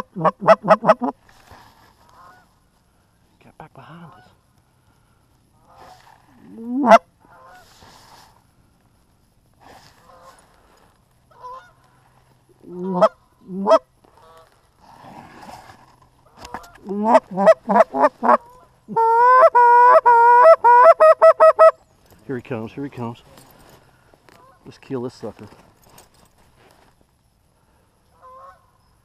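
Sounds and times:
goose clucking: 0.0s - 1.2s, 5.6s - 7.7s, 12.6s - 14.5s, 16.2s - 21.8s
goose honking: 0.0s - 1.2s, 12.6s - 14.5s, 16.5s - 21.8s, 28.2s - 28.7s.

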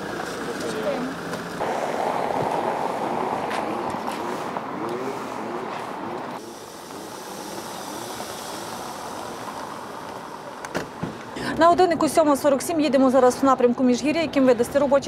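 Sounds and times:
car driving over cobblestones: 0.0s - 11.4s
street noise: 0.0s - 15.0s.

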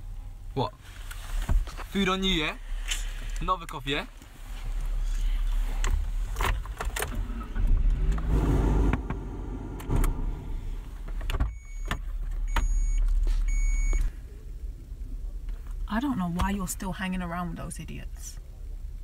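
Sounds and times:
car engine rumbling: 0.0s - 19.0s
short electronic warning beeps: 12.5s - 14.0s.

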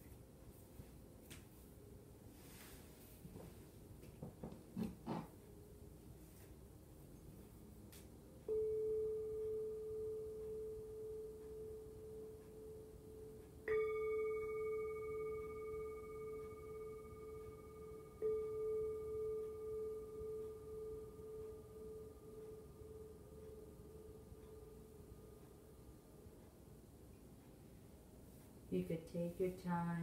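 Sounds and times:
singing bowl ringing: 8.5s - 25.9s.

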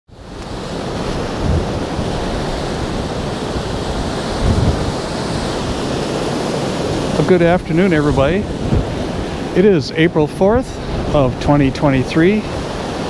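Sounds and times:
surf breaking on rocky shore: 0.1s - 13.0s
wind rushing over microphone: 0.1s - 13.0s.

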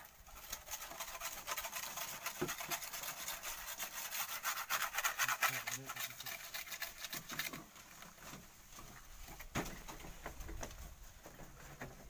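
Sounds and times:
tool scraping sand and gravel: 0.0s - 7.8s.

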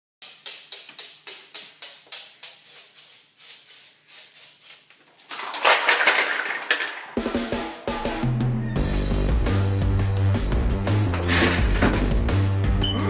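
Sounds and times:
plastic cups clattering over: 5.2s - 7.3s, 11.1s - 12.3s.

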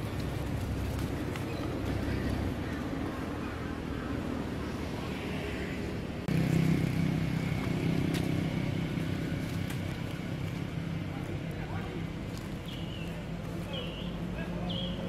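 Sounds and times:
low motor hum: 6.1s - 14.4s.

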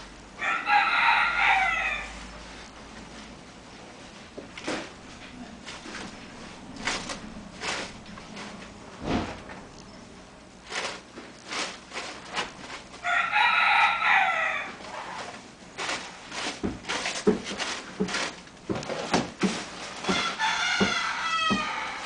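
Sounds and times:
scratchy rustling and knocking: 5.6s - 9.8s, 10.6s - 13.0s, 14.8s - 22.0s.

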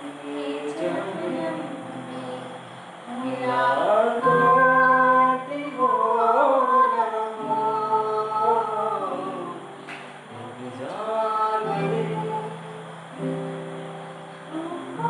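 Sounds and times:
man and woman singing: 0.0s - 13.6s, 14.4s - 15.0s.

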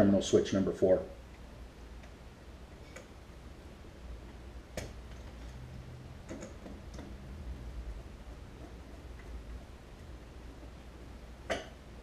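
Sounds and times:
low hum: 1.2s - 12.0s.

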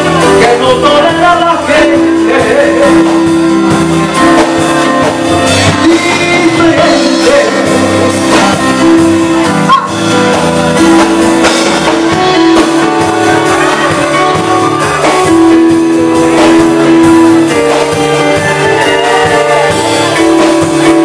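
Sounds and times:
held keyboard chords: 0.0s - 21.0s
live band instrumental: 0.0s - 21.0s
steady beat: 3.4s - 21.0s.

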